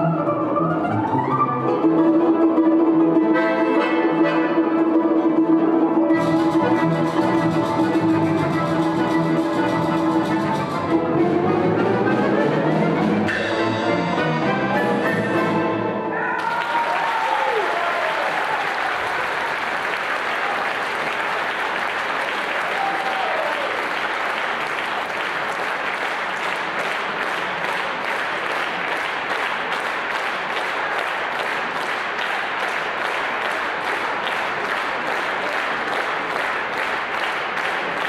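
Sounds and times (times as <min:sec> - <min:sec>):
audience applauding: 0:16.3 - 0:38.0.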